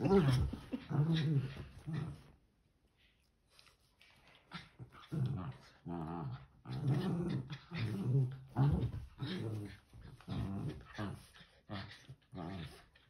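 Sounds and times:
small dogs growling: 4.3s - 13.0s.

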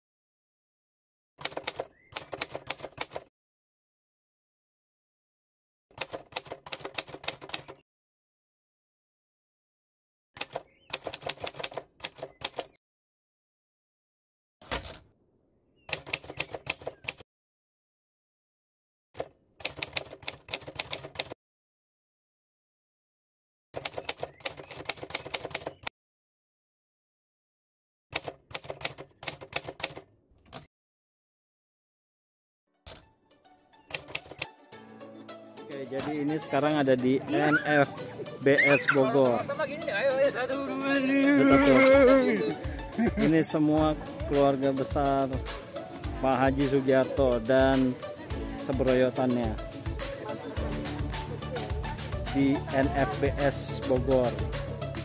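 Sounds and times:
typewriter key clicks: 15.9s - 17.2s, 19.2s - 21.4s, 28.1s - 30.7s
typewriter key clatter: 19.2s - 21.4s.

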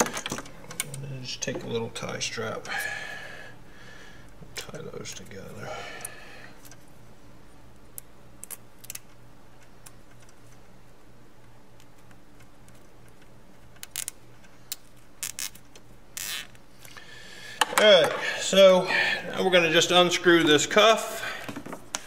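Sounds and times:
low steady hum: 0.0s - 22.0s
cable tie ratcheting zip: 13.7s - 16.6s.

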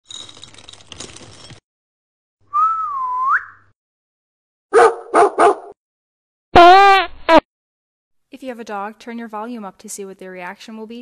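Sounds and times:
whistled note sliding upward: 2.5s - 3.6s
dog barking: 4.7s - 5.8s.

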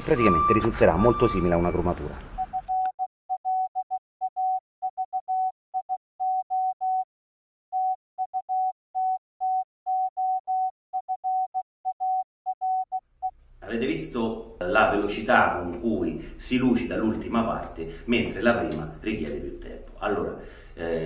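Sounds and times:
morse code beeping: 0.2s - 7.0s, 7.8s - 13.0s.

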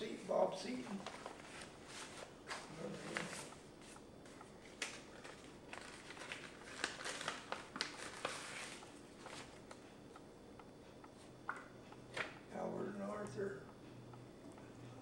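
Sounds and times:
paper rustling: 4.7s - 9.5s.

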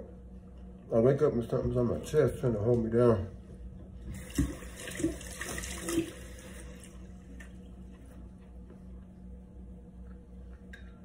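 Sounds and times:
low hum: 6.0s - 11.0s.

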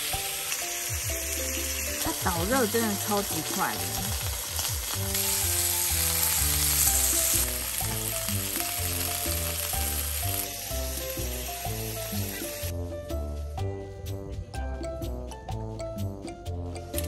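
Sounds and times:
steak sizzling in a hot pan: 0.0s - 12.7s
background music with low notes: 0.0s - 17.0s.

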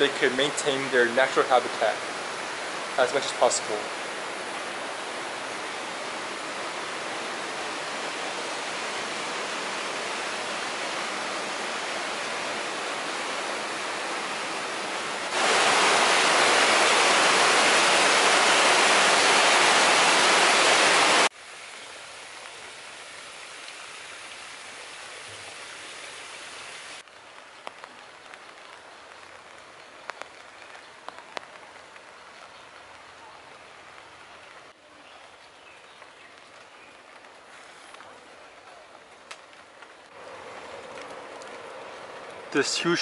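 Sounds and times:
waterfall splashing over rocks: 0.0s - 14.0s, 15.0s - 32.1s, 40.1s - 43.0s
water rushing: 0.0s - 27.1s, 40.0s - 43.0s
steady rain: 0.0s - 43.0s.

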